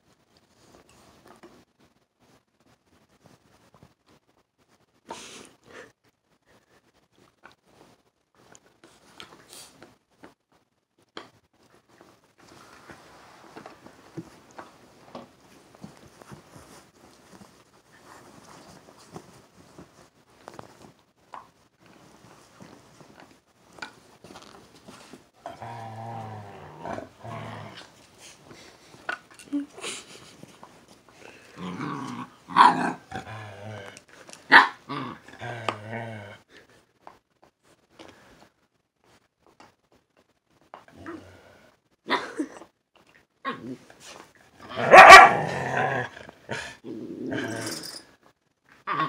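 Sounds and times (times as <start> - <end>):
scuffling on a dog bed: 15.4 - 21.0
dog growling: 25.4 - 28.0, 31.2 - 36.6, 40.9 - 41.7, 44.6 - 48.0
puppies growling and barking: 44.6 - 47.8.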